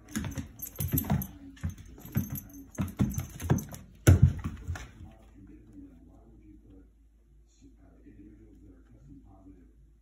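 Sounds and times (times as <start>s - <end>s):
collar tag jingle: 0.0s - 5.2s
thumps and scrabbling paws on floor: 0.0s - 5.2s.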